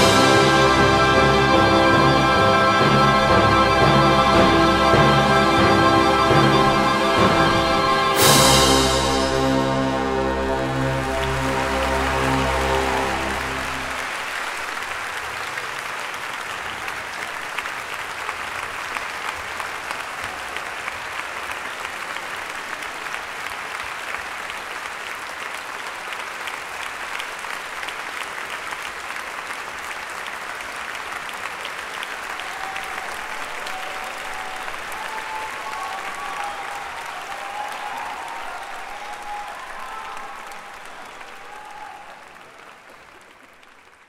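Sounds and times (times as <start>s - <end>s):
wind band chord: 0.0s - 14.2s
audience applause: 0.0s - 44.0s.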